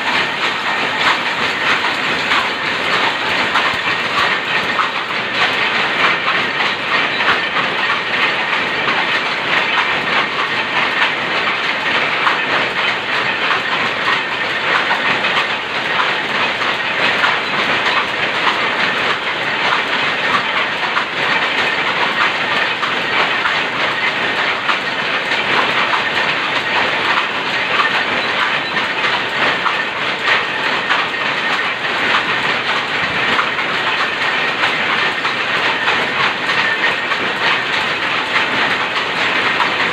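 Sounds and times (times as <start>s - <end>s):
power looms clattering: 0.0s - 39.9s.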